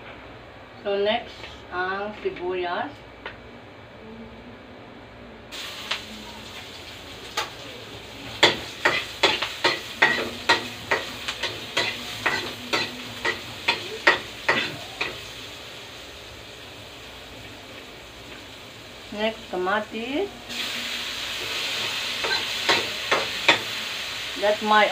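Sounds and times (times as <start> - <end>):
onion sizzling in hot oil: 5.5 - 24.9.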